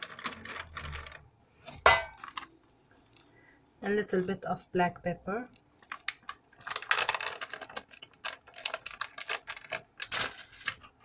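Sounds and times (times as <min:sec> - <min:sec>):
pepper packet crackling: 0:00.0 - 0:01.2, 0:05.8 - 0:11.0.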